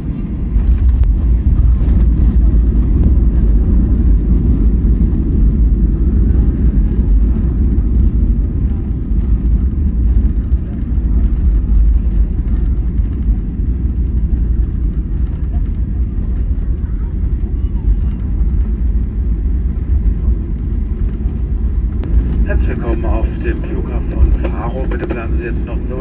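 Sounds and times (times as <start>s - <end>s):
aircraft landing gear rumbling on runway: 0.0s - 26.0s
jet engines: 0.0s - 26.0s.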